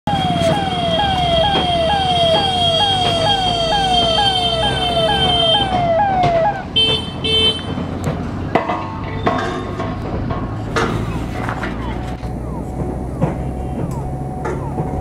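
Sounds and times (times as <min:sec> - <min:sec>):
ambulance siren: 0:00.1 - 0:07.0, 0:11.9 - 0:15.0.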